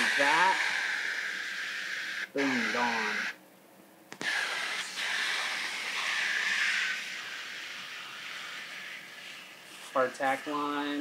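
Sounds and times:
steady hiss: 0.0 - 3.4, 4.1 - 11.0.

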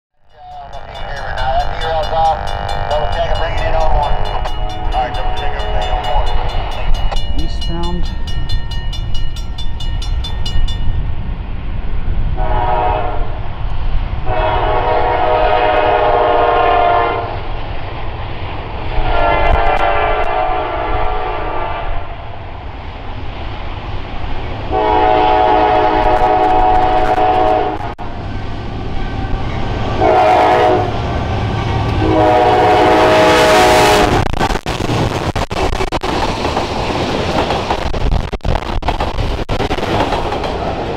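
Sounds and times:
train wheels on rails: 0.3 - 40.9
locomotive air horn blasts: 4.1 - 6.2, 12.4 - 13.4, 14.2 - 17.3, 19.0 - 22.0, 24.7 - 27.9, 28.9 - 31.0, 31.7 - 34.2.

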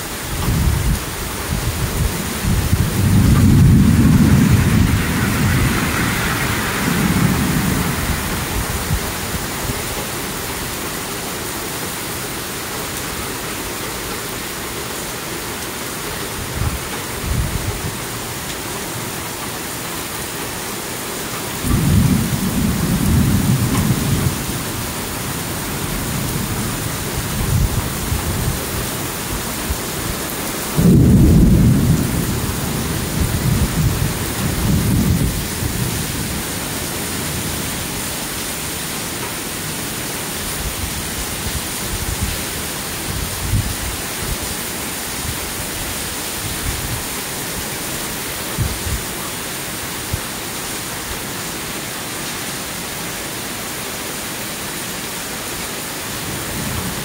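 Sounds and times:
heavy rain falling: 0.0 - 57.0
thunder rumbling: 0.4 - 10.7, 21.5 - 29.8, 30.7 - 38.1.

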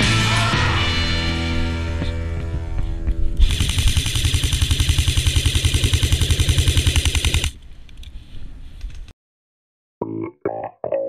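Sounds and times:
airsoft rifle full-auto burst: 3.4 - 7.6.

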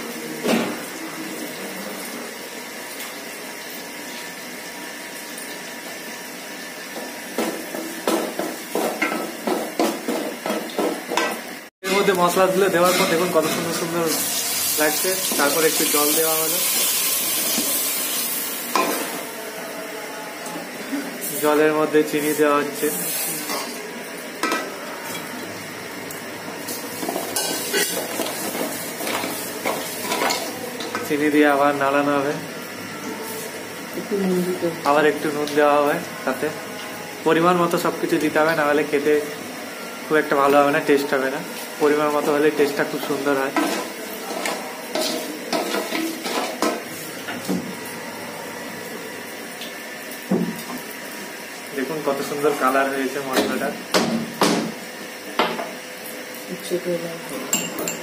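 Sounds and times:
light sizzle: 11.1 - 19.4, 20.4 - 53.8
wooden spoon stirring and scraping pot: 43.5 - 46.8.

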